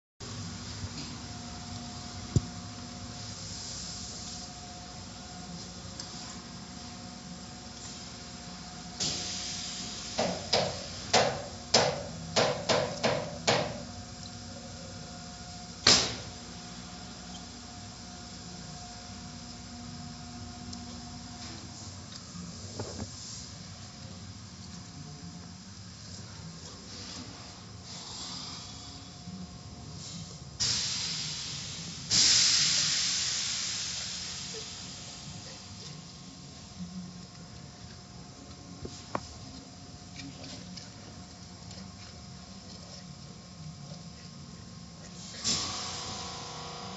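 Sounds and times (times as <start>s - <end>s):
car wash machinery hum: 0.2s - 46.9s
jet of spray or air: 9.0s - 11.5s, 30.0s - 35.6s, 45.2s - 46.9s
sharp slaps: 15.8s - 16.2s.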